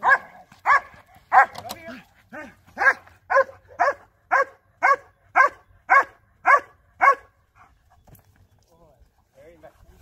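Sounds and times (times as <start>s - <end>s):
dog barking sharply: 0.0s - 1.7s, 2.8s - 7.3s.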